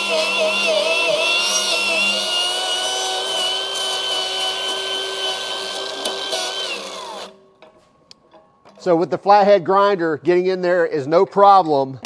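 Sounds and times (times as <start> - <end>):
angle grinder whining: 0.0 - 7.4
flap disc grinding steel: 0.0 - 9.2.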